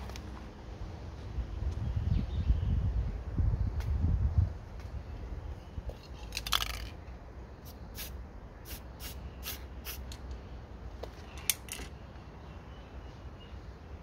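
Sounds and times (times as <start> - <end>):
spray paint can hissing: 7.6 - 10.2.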